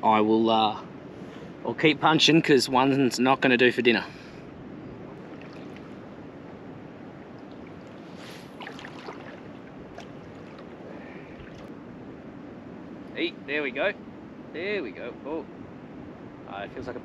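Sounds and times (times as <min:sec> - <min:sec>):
light wind: 0:00.0 - 0:17.0
river water: 0:01.2 - 0:14.5.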